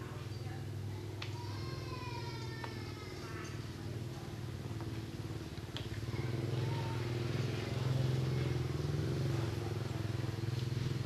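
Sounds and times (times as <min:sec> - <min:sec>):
vehicle engine running at low revs: 0:03.9 - 0:11.0.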